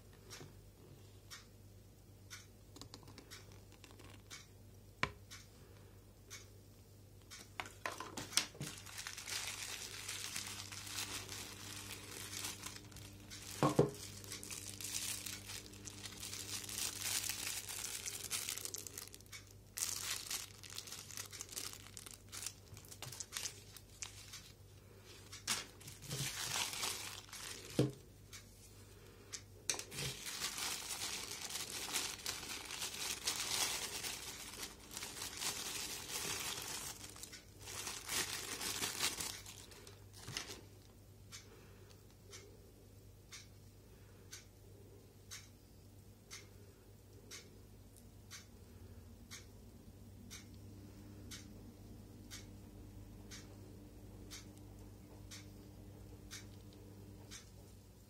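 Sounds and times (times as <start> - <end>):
plastic packaging crinkling: 7.6 - 28.0, 29.7 - 40.9.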